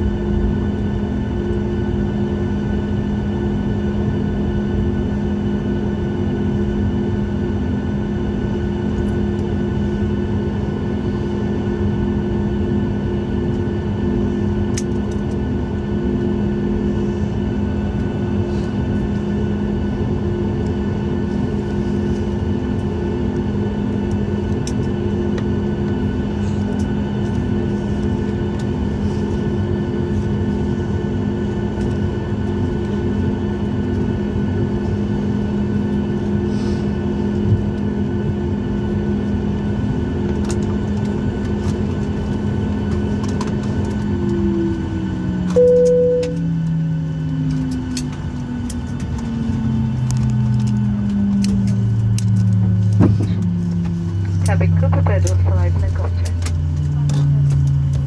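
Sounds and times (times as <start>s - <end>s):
jet engine drone: 0.0s - 58.0s
short cabin chime: 45.5s - 46.5s.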